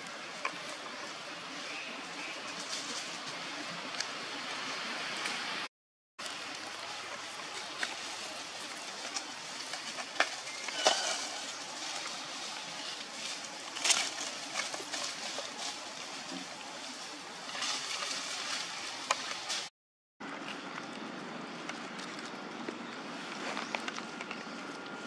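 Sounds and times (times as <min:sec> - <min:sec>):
leaves rustling: 0:00.0 - 0:05.6, 0:06.2 - 0:19.7
steady outdoor hiss: 0:00.0 - 0:25.0
twigs cracking: 0:06.3 - 0:16.6.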